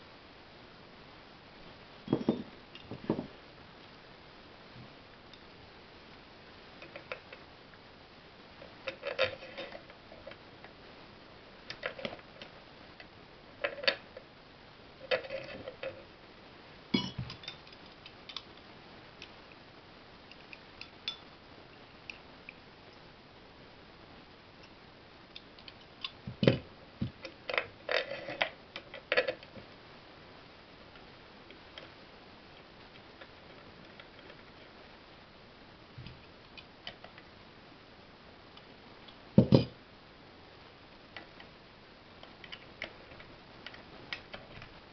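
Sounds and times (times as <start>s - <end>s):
metal parts clinking and knocking: 2.1s - 3.2s.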